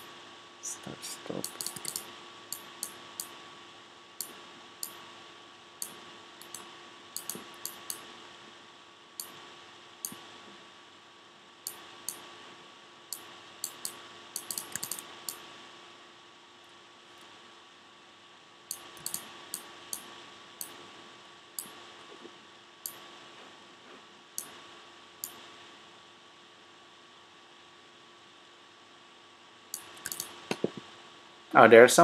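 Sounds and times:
faint steady hum: 0.0s - 32.0s
mouse and keyboard clicks: 1.4s - 3.3s, 5.8s - 8.0s, 13.6s - 15.4s, 18.7s - 20.8s, 29.8s - 30.8s.

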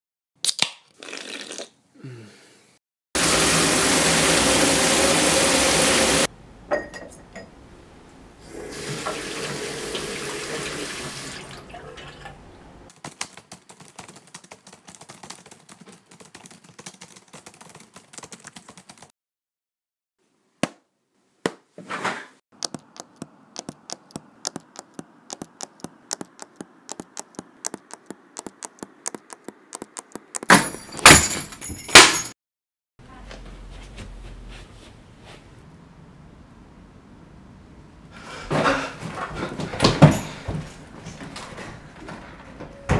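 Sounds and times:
water running from tap: 3.2s - 6.3s, 8.4s - 12.5s
laptop keyboard typing: 13.0s - 19.1s, 22.6s - 30.5s.

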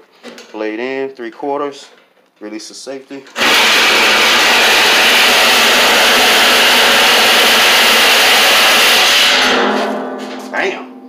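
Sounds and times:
reciprocating saw cutting metal: 3.4s - 9.8s.

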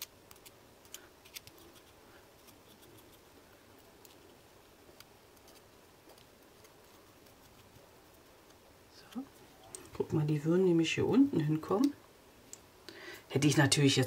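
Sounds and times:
small clicks and light scratching: 0.0s - 9.9s.

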